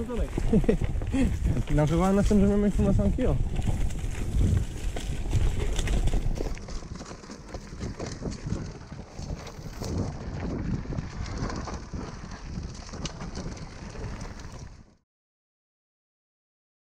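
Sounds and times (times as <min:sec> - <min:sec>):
bike clicks and rattles: 0:00.0 - 0:15.0
wind buffeting microphone: 0:00.0 - 0:15.0.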